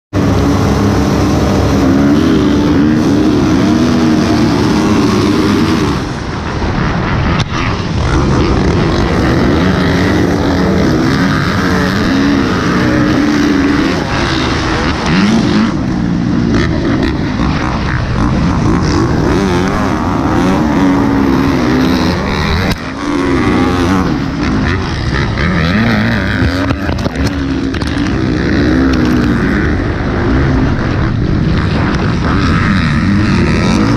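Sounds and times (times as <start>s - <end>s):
dirt bike engines revving: 0.1s - 33.9s.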